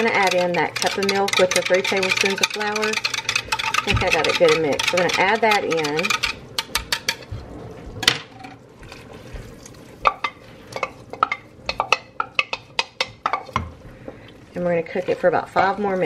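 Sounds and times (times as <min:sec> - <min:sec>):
whisk clinking in a pot: 0:00.0 - 0:07.2, 0:10.0 - 0:13.6.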